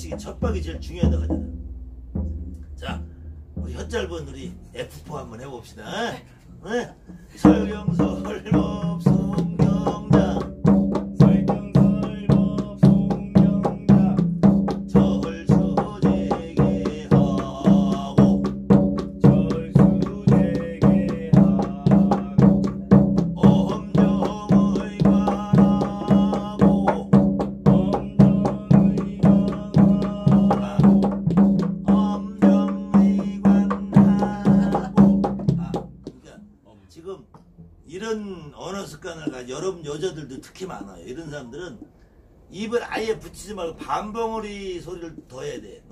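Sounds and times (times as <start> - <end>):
drum beaten in even rhythm: 0.0 - 4.2, 7.2 - 36.2
person chanting: 7.4 - 10.6, 11.2 - 14.3, 14.9 - 18.6, 19.2 - 35.9.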